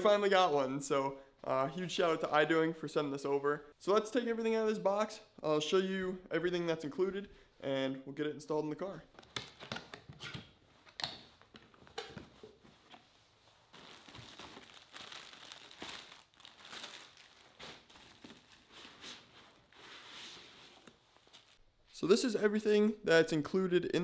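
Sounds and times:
plastic wrapping crinkling: 0:10.8 - 0:21.6.

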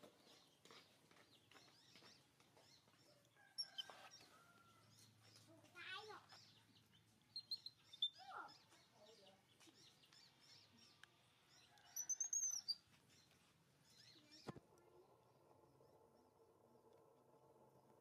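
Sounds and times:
baby monkey squeaking: 0:07.3 - 0:08.7
shrill chirps: 0:07.3 - 0:08.7.

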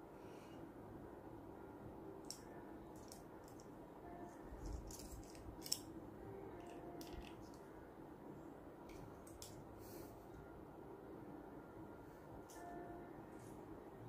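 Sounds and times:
faint steady hum: 0:00.0 - 0:14.0
plastic and metal parts handled: 0:03.0 - 0:03.6, 0:04.6 - 0:05.9, 0:06.6 - 0:07.6
screwdriver clicks and scrapes: 0:04.6 - 0:05.8.

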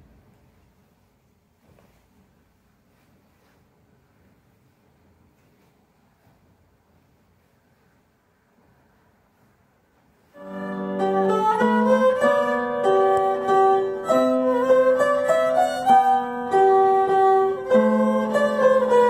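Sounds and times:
piano accompaniment: 0:10.3 - 0:19.0
violin playing slow melody: 0:10.4 - 0:19.0.

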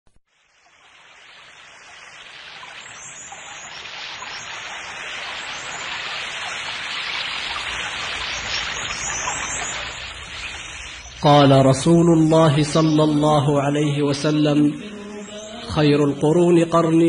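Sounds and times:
rushing water: 0:00.3 - 0:17.0
faint water drips: 0:00.4 - 0:13.6.

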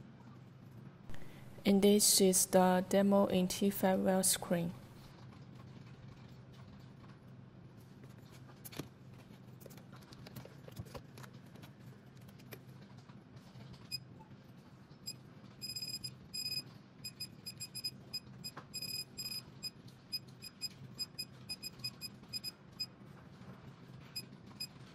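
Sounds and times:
low steady hum: 0:00.0 - 0:12.9.

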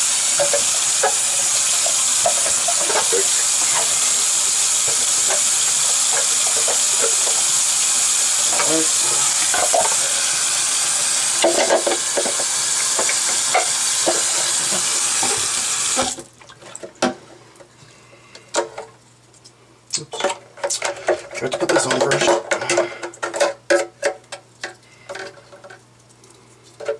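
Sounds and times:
faucet running into sink: 0:00.0 - 0:16.3
plastic parts knocking: 0:20.2 - 0:25.8.

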